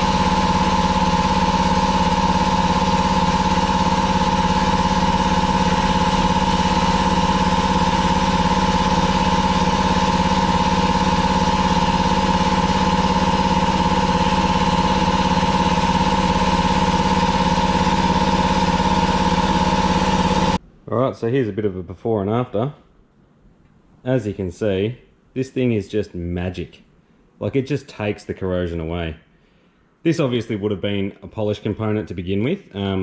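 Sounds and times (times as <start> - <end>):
machine drone: 0.0 - 20.6.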